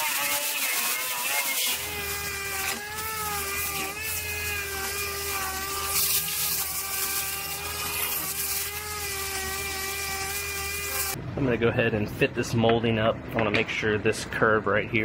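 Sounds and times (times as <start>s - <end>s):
handheld sander whining: 0.0s - 11.2s.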